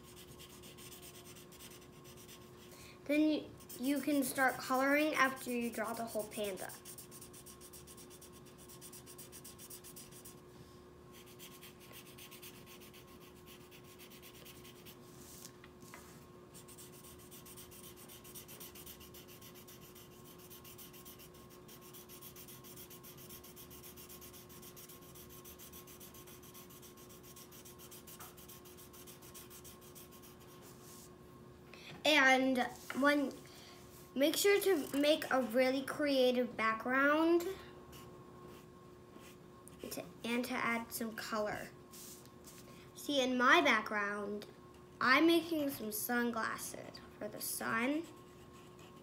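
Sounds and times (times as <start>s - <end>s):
marker scribbling on paper: 0.0s - 2.4s, 5.7s - 10.4s, 11.2s - 15.4s, 16.6s - 31.0s.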